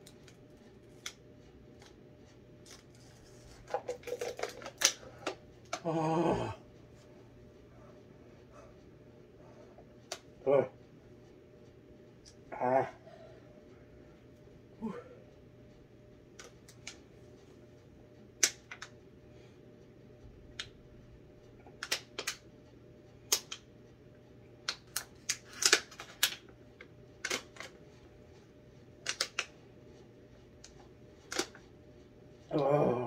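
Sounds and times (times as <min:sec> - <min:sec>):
faint hum: 0:00.0 - 0:33.0.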